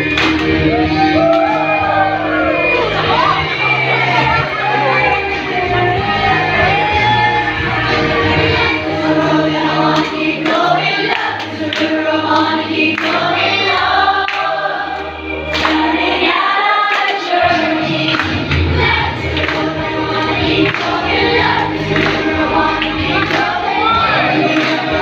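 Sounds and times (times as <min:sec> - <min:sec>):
hands clapping along: 0:00.0 - 0:01.7, 0:09.2 - 0:16.0, 0:16.8 - 0:25.0
group singing over music: 0:00.0 - 0:25.0.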